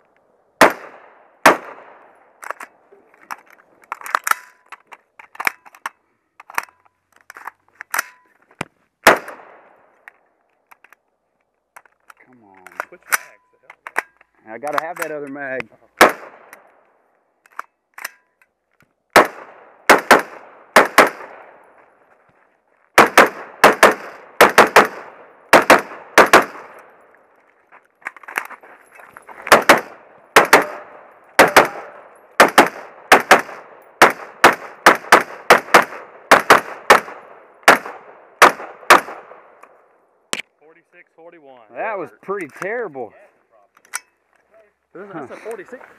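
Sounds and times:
rifle shots: 0.6s - 2.1s, 9.0s - 9.8s, 16.0s - 16.6s, 19.1s - 21.6s, 23.0s - 27.0s, 29.5s - 39.6s.

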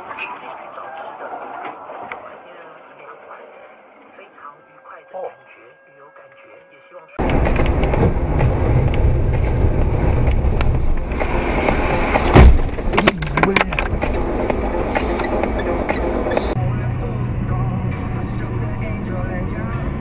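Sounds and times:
loud thump: 7.2s - 14.2s
sharp knocks and clicks: 7.2s - 16.6s
car road and engine rumble: 7.2s - 20.0s.

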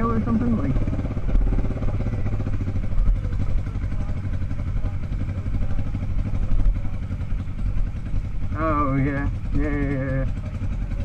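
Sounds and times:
motorcycle engine low rumble: 0.0s - 11.0s.

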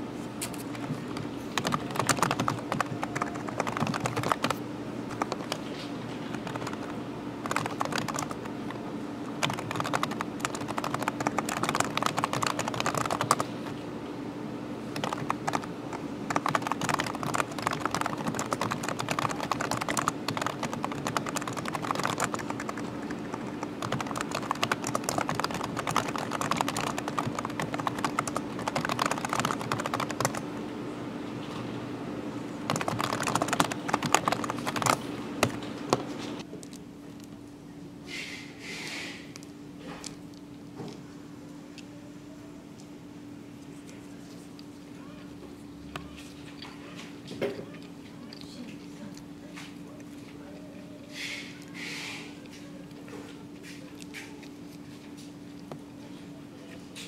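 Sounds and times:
steady low hum: 0.0s - 57.0s
fast keyboard typing: 0.8s - 13.5s, 14.9s - 30.5s, 32.7s - 36.5s.

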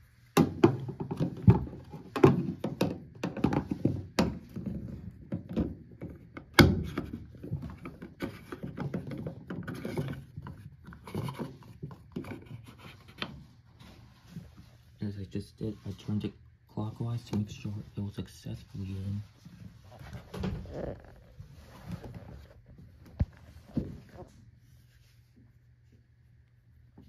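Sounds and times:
plastic knocks clicks and scrapes: 0.4s - 13.4s.

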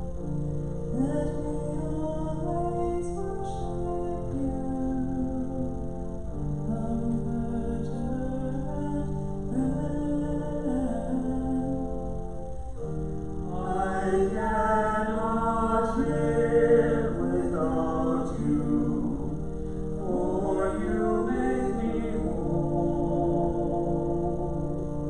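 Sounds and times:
women singing a hymn: 0.9s - 5.8s, 13.5s - 25.0s.

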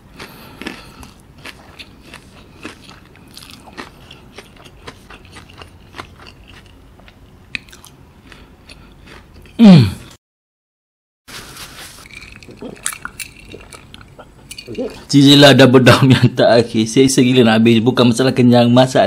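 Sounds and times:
chewing crunches: 0.0s - 10.1s, 12.0s - 15.1s
low throat sound: 9.6s - 10.2s
wet mouth clicks: 12.1s - 15.1s.

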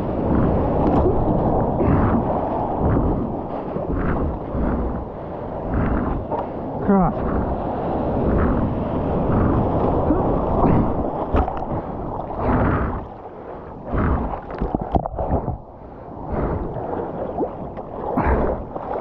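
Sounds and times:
whitewash rushing and splashing: 0.0s - 13.2s
wind buffeting microphone: 0.0s - 19.0s.

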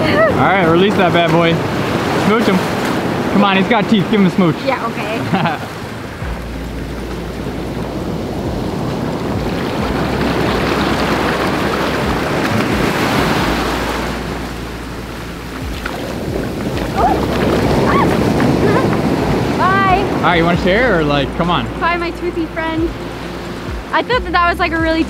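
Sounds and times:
ocean surf washing in: 0.0s - 25.0s
wind rumbling on microphone: 0.0s - 25.0s.

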